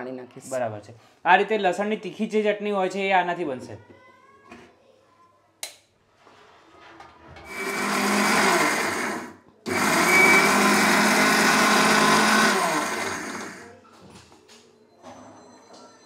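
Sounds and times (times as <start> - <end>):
mixer grinder running: 7.4 - 13.7.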